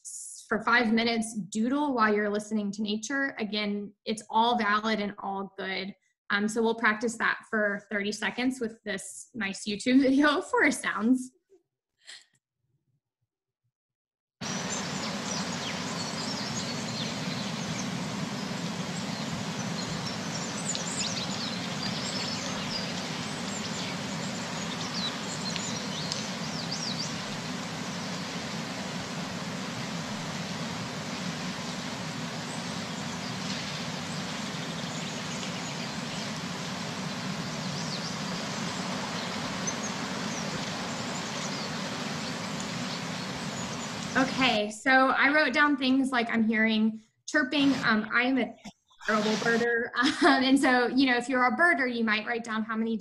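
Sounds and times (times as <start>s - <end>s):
birdsong chirps: 14.4s - 44.6s
steady rushing hiss: 14.4s - 44.7s, 49.1s - 49.7s.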